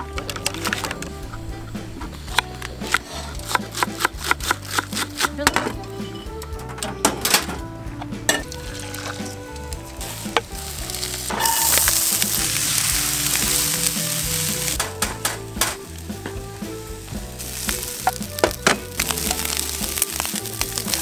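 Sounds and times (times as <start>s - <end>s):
food sizzling in frying pan: 8.4s - 21.0s.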